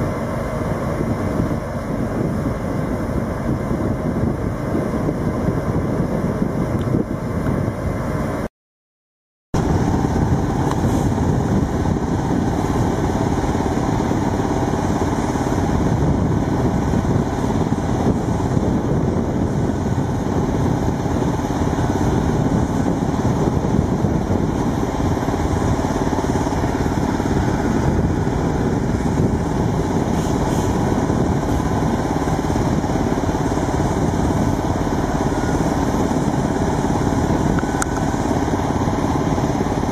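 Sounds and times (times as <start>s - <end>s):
heavy machinery engine running: 0.0s - 8.5s, 9.6s - 39.9s.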